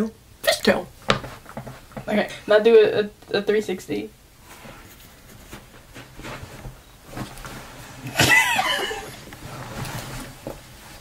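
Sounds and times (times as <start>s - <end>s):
faint rustling: 4.3s - 11.0s.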